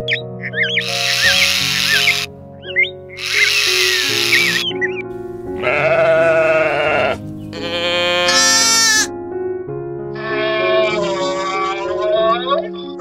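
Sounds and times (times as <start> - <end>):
background piano music: 0.0 - 13.0
drawn-out animal call: 0.8 - 2.3, 3.2 - 4.7, 5.6 - 9.1
sheep bleating: 0.8 - 2.3, 3.2 - 4.6, 5.6 - 9.1, 10.2 - 12.0.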